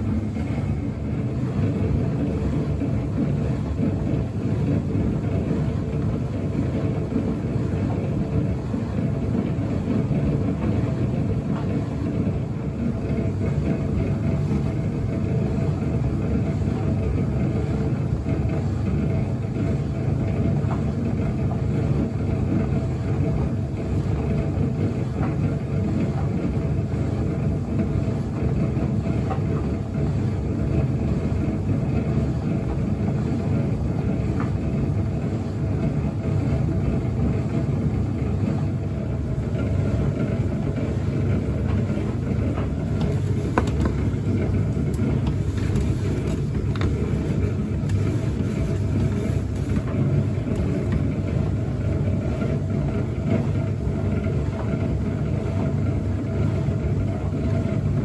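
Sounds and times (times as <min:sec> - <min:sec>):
tumble dryer running: 0:00.0 - 0:58.0
clothes tumbling in drum: 0:41.2 - 0:51.5.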